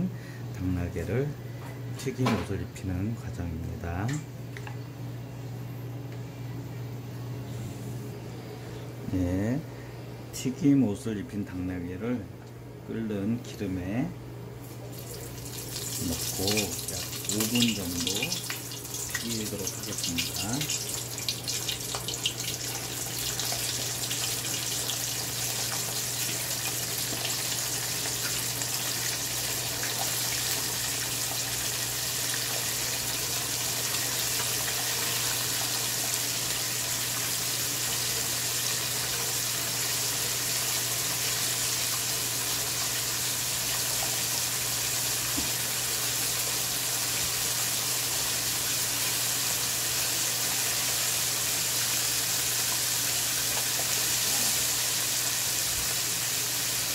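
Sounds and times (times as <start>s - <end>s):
low steady hum: 0.0s - 34.0s
oil sizzling in a wok: 14.7s - 56.9s.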